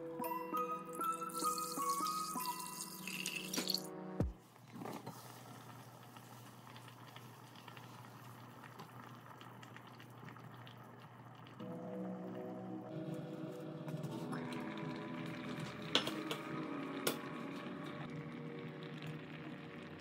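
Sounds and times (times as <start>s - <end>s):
music: 0.0s - 4.4s, 11.6s - 20.0s
water pouring into pot: 1.0s - 3.9s, 5.5s - 12.6s, 14.2s - 20.0s
low hum: 11.6s - 20.0s.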